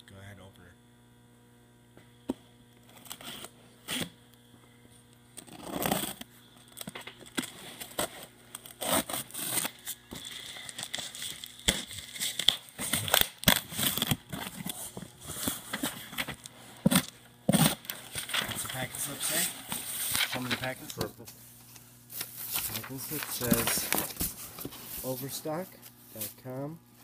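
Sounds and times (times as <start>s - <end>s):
blade slitting packing tape: 2.9s - 4.2s, 5.4s - 18.6s
cardboard ripping and scraping: 5.4s - 6.2s, 7.4s - 21.2s, 22.1s - 25.6s
plastic wrapping crinkling: 6.6s - 26.5s.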